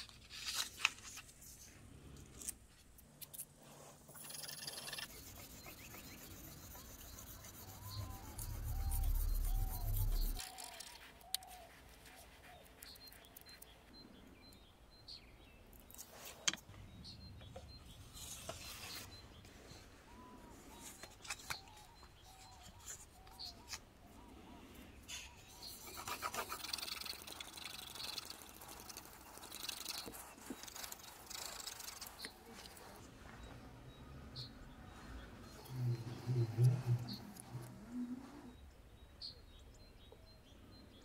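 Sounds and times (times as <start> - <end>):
short chirping calls: 4.1 - 11.8
sandpaper scratching on steel blade: 4.3 - 11.0, 25.6 - 32.4.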